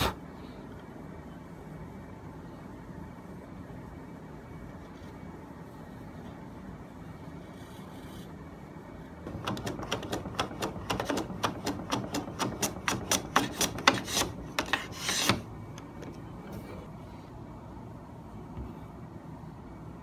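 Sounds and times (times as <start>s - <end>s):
hand saw cutting wood: 12.4s - 15.4s.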